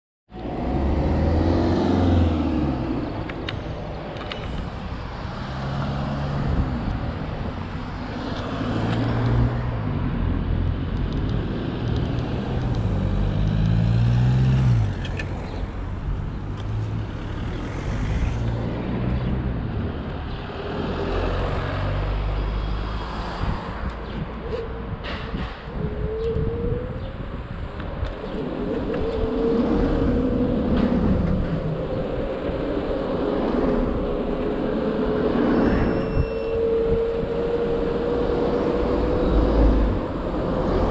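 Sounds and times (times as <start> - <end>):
engine rising and falling in pitch: 0.3 - 3.6, 28.2 - 40.9
low traffic hum: 0.3 - 40.9
vehicle engines passing: 0.3 - 40.9.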